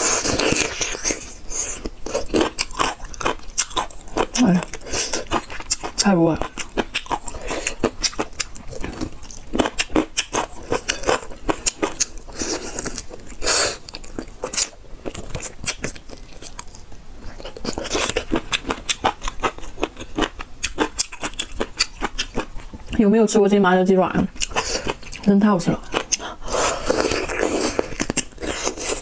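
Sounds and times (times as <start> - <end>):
crunchy chewing: 0.0 - 23.0, 24.3 - 29.0.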